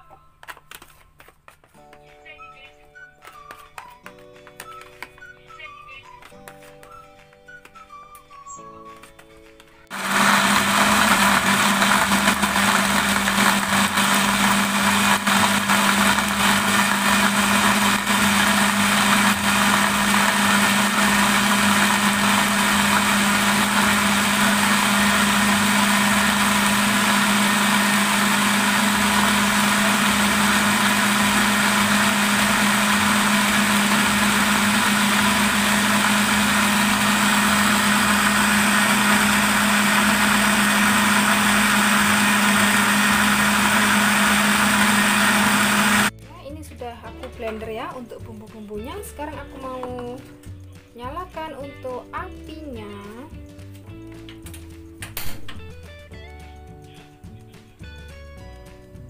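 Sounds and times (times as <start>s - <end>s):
blender motor running: 9.9s - 46.1s.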